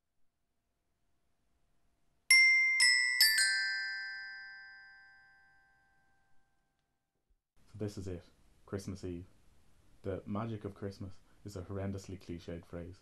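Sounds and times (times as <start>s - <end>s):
glockenspiel notes: 2.3s - 6.4s.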